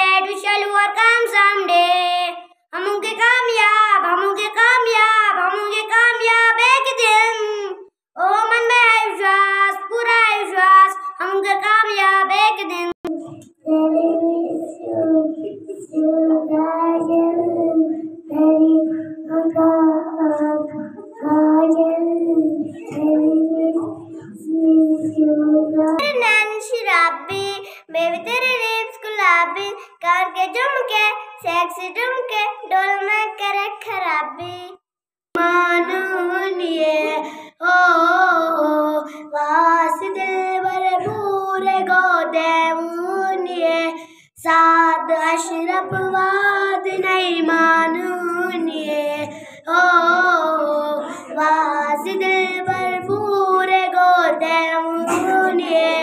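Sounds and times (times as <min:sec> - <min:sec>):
children singing into microphone: 0:13.0 - 0:26.1, 0:35.4 - 0:56.0.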